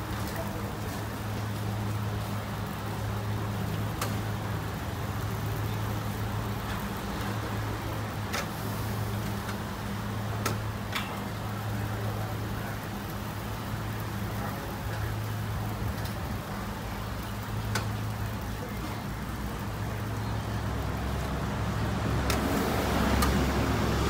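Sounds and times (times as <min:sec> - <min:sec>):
electric fans running: 0:00.0 - 0:24.0
griddle hum and hiss: 0:00.0 - 0:24.0
metal utensils clicking on griddle: 0:03.8 - 0:04.3, 0:08.2 - 0:08.6, 0:10.3 - 0:11.4, 0:17.2 - 0:18.3, 0:22.2 - 0:23.5.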